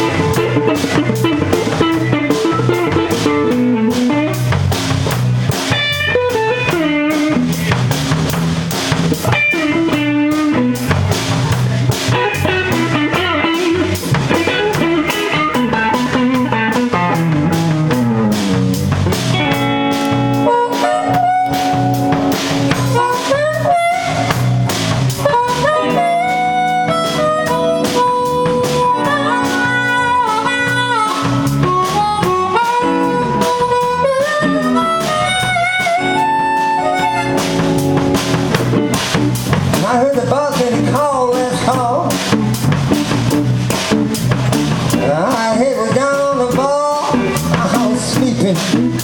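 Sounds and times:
amplified harmonica: 0:00.0 - 0:04.6, 0:19.3 - 0:39.4
drum kit beat: 0:00.0 - 0:49.0
electric bass: 0:00.0 - 0:49.0
electric guitar: 0:00.0 - 0:49.0.

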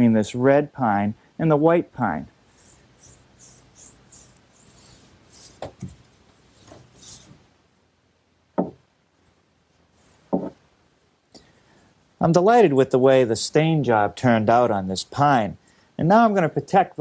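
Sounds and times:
knocks on wooden cabinet: 0:08.6 - 0:08.8, 0:10.3 - 0:10.6.

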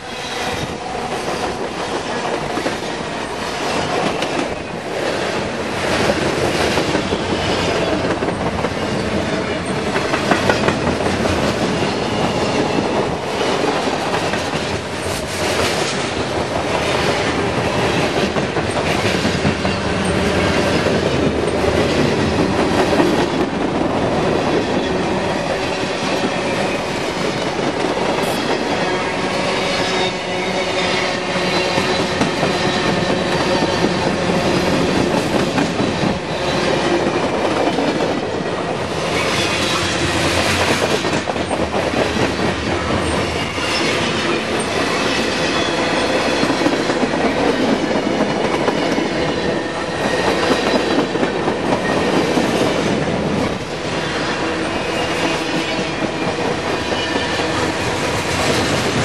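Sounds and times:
train wheels clattering on rails: 0:00.0 - 0:59.0.

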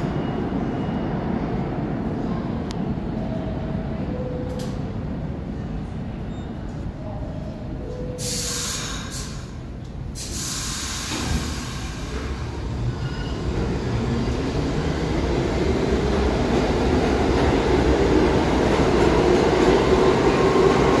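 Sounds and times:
subway trains rumbling: 0:00.0 - 0:21.0
air hissing: 0:08.2 - 0:09.6, 0:10.2 - 0:12.4.

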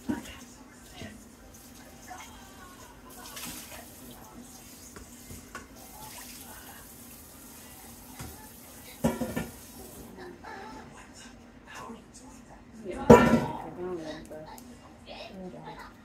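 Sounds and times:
tap water running into metal sink: 0:03.2 - 0:10.0.

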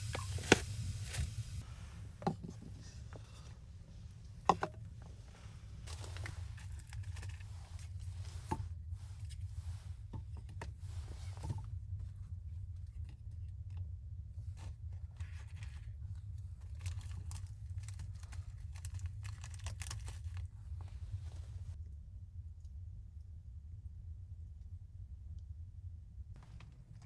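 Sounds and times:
steady low hum: 0:00.0 - 0:27.0
jars knocking and clinking on shelf: 0:04.4 - 0:04.9
packet rustling: 0:05.8 - 0:08.1, 0:16.6 - 0:20.8.

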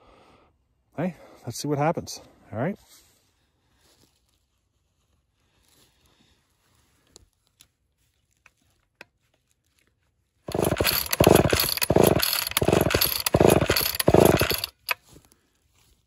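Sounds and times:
chainsaw engine revving: 0:10.5 - 0:15.0.

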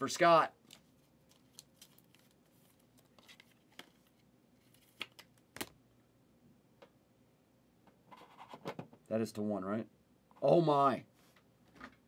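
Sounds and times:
trading cards rustling: 0:00.6 - 0:05.3.

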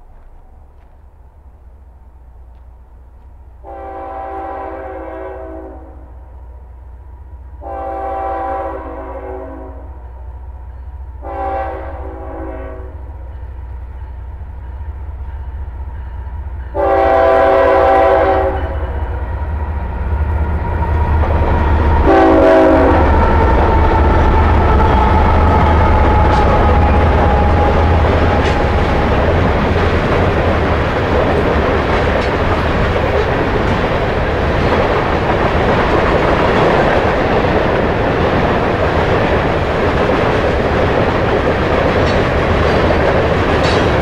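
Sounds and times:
train rumbling on rails: 0:00.0 - 0:44.0
train horn blasts: 0:03.6 - 0:06.2, 0:07.6 - 0:10.2, 0:11.2 - 0:13.3, 0:15.3 - 0:19.3, 0:22.0 - 0:23.3.

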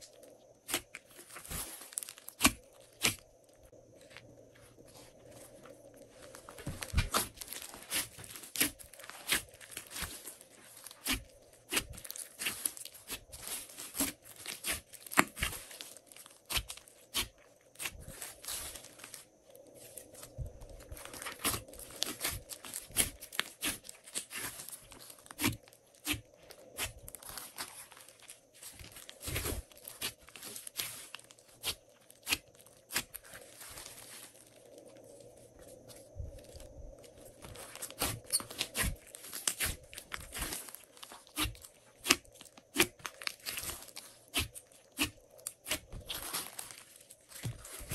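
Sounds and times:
slime crackling and popping: 0:37.8 - 0:47.9.

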